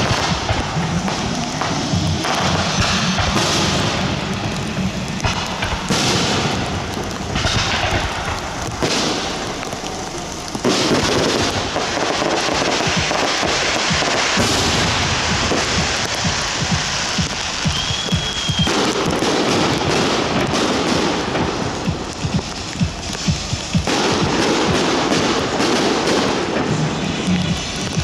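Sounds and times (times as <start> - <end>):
fireworks bangs and crackling: 0.0 - 28.0
thin firework whistle: 1.6 - 3.9, 15.6 - 20.0.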